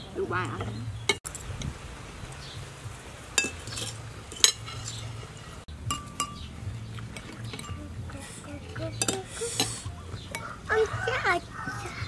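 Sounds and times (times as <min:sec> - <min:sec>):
metal spoons clinking on ceramic: 0:03.4 - 0:05.0, 0:05.9 - 0:06.5, 0:07.1 - 0:08.0, 0:08.6 - 0:10.5.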